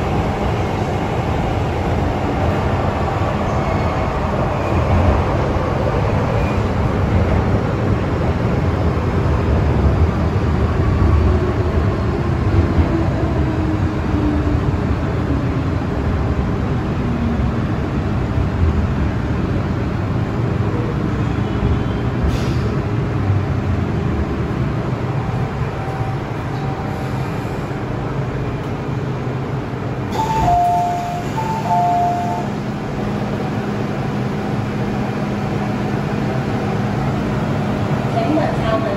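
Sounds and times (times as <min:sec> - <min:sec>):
metro train rumbling: 0:00.0 - 0:38.9.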